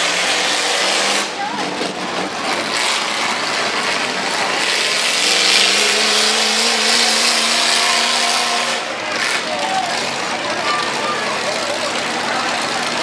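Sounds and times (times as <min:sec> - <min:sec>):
car engines revving: 0:00.0 - 0:13.0
engine holding steady tone: 0:00.0 - 0:13.0.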